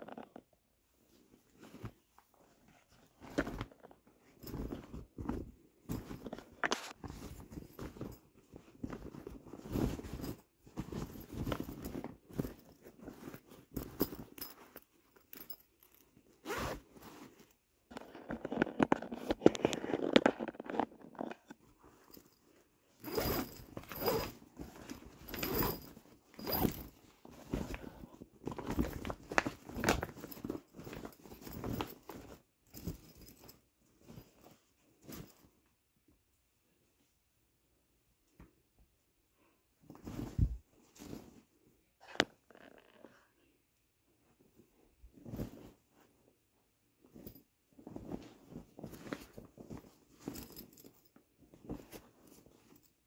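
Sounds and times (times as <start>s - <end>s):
fabric rustling and crinkling: 0.8s - 35.7s, 39.7s - 43.3s, 44.0s - 53.0s
zipper pulled open: 16.4s - 17.1s, 23.0s - 26.9s, 42.0s - 43.4s.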